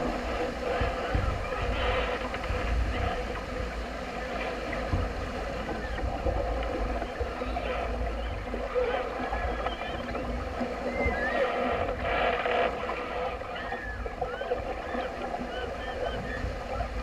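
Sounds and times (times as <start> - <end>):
water rushing along boat hull: 0.0 - 17.0
wind buffeting microphone: 0.0 - 17.0.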